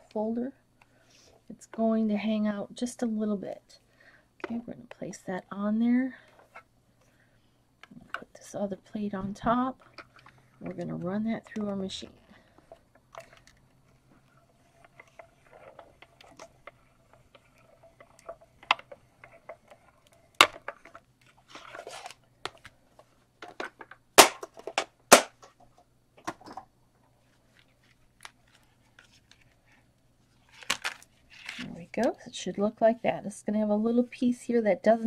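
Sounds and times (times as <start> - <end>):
card crackling and creaking: 9.5 - 25.6, 27.4 - 32.1.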